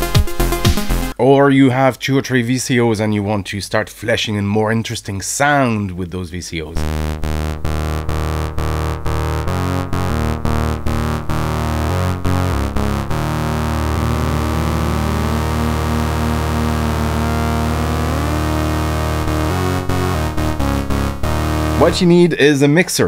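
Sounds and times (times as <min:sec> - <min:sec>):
sustained synthesizer chord: 0:06.8 - 0:22.2
oscillator pitch gliding upward: 0:06.8 - 0:22.3.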